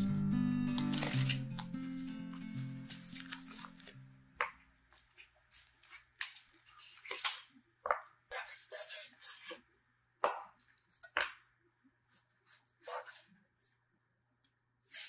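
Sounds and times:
plastic wrap crinkling: 0:00.0 - 0:04.1.

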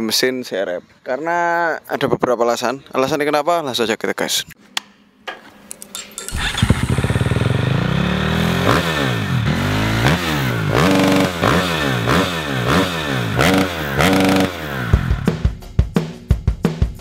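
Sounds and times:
motorcycle engine revving: 0:06.3 - 0:15.4.

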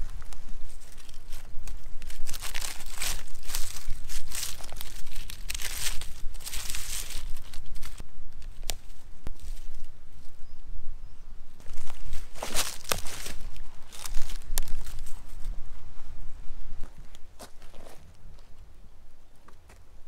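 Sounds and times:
hand rustling dry leaves: 0:00.0 - 0:10.6, 0:11.6 - 0:18.0
twig snap: 0:11.7 - 0:15.0.

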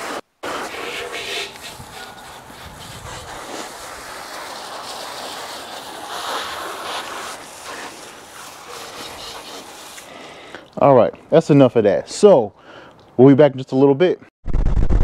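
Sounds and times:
hose spray hissing and splashing: 0:00.0 - 0:10.5.

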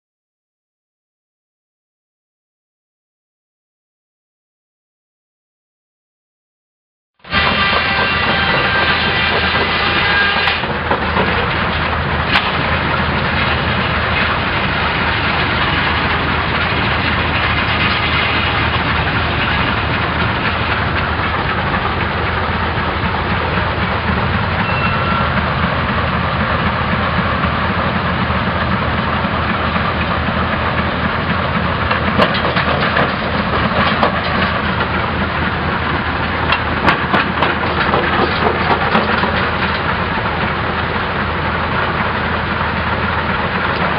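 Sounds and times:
rock crusher clatter and rumble: 0:08.3 - 0:24.4, 0:26.9 - 0:43.9.

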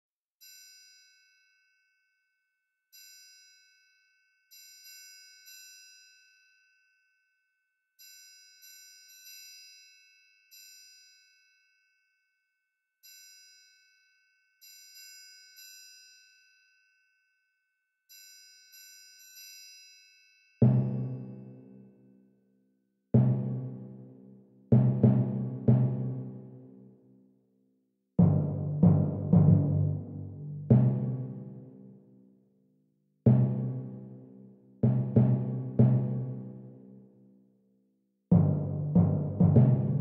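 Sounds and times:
chiming bell notes music: 0:02.9 - 0:07.3, 0:08.0 - 0:12.3, 0:13.0 - 0:17.3, 0:18.1 - 0:21.8.

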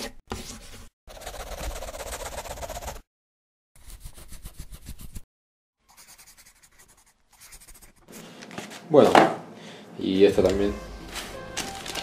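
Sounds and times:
pencil scribbling on paper: 0:01.1 - 0:03.0, 0:03.8 - 0:05.2, 0:05.9 - 0:08.2.

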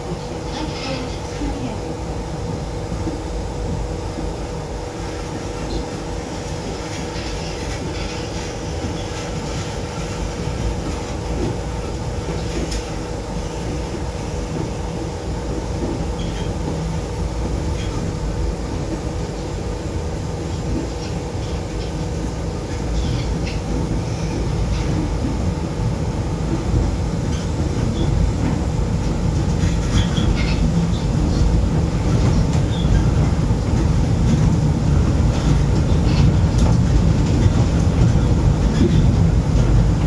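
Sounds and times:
train rumble inside car: 0:00.0 - 0:40.0.

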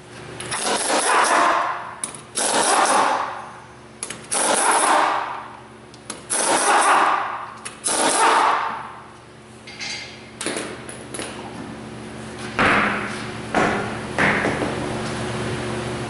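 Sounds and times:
pneumatic impact wrench bursts: 0:00.5 - 0:01.7, 0:02.3 - 0:03.4, 0:04.2 - 0:05.4, 0:06.2 - 0:08.8.

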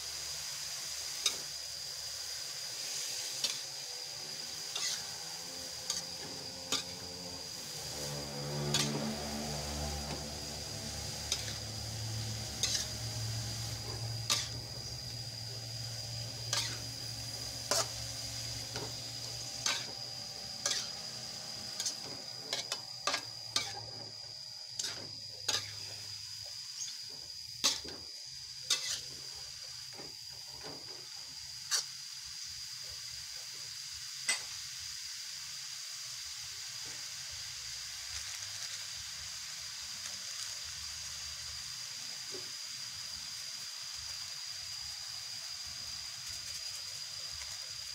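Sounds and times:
food sizzling in wok: 0:00.0 - 0:47.9
spatula scraping and knocking wok: 0:00.6 - 0:32.0.

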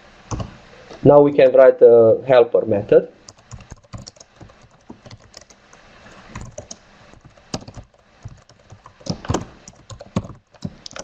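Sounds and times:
keyboard typing: 0:00.3 - 0:00.6, 0:03.3 - 0:11.0.

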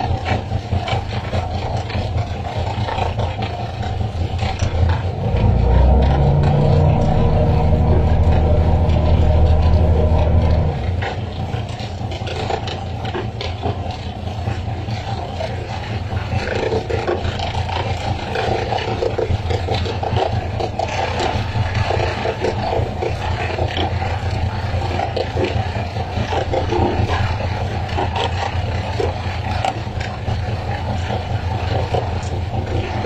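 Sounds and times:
boat engine drone: 0:00.0 - 0:33.0
water rushing and splashing: 0:03.5 - 0:13.6.

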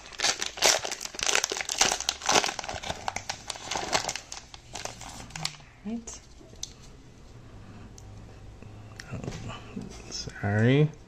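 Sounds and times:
foil wrapper crinkling: 0:00.0 - 0:05.6.

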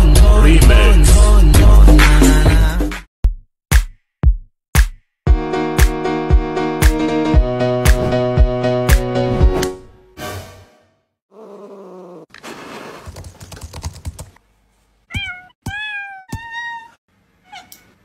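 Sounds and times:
computer keyboard keys clicking: 0:13.1 - 0:14.4
cat meowing: 0:15.1 - 0:17.9.

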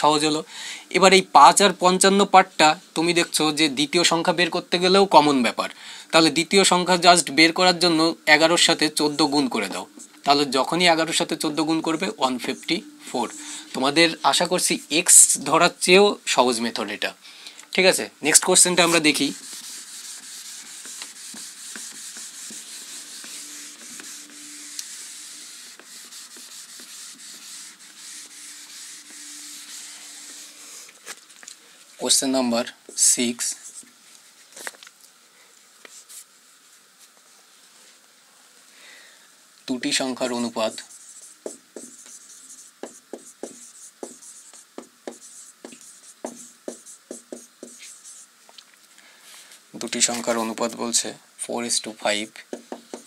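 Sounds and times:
eraser rubbing whiteboard: 0:18.4 - 0:31.0, 0:40.6 - 0:48.3.

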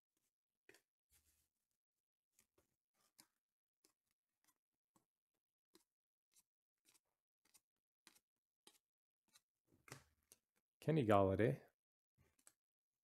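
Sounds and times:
trading cards being dealt: 0:05.7 - 0:10.4.

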